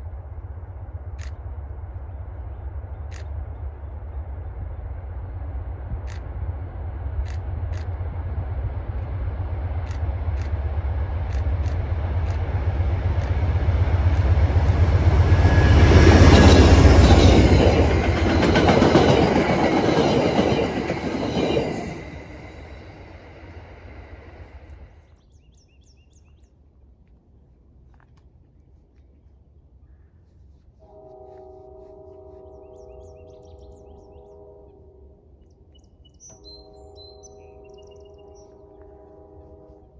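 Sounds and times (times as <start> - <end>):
diesel train passing: 0.0 - 25.4, 30.8 - 39.9
train wheels clattering: 9.7 - 24.4.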